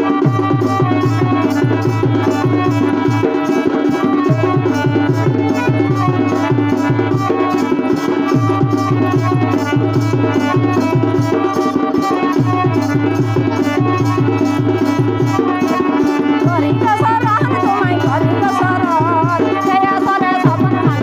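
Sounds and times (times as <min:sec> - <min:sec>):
held melody notes: 0:00.0 - 0:21.0.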